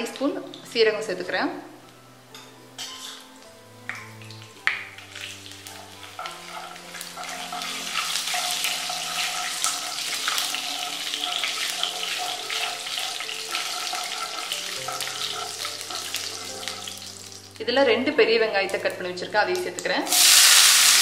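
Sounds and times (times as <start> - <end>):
spices sizzling in hot oil: 0.0 - 21.0
wooden spatula stirring: 4.9 - 17.1.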